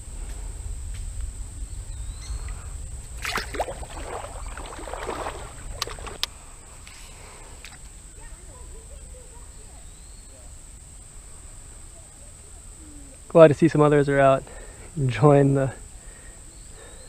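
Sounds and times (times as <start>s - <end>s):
steady low rumble: 0.0s - 8.2s
water splashing: 3.0s - 6.3s
sharp clicks: 5.7s - 6.3s.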